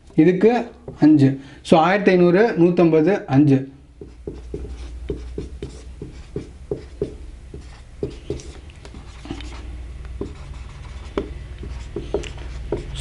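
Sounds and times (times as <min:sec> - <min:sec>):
marker pen on whiteboard: 0:00.0 - 0:01.3, 0:03.9 - 0:13.0.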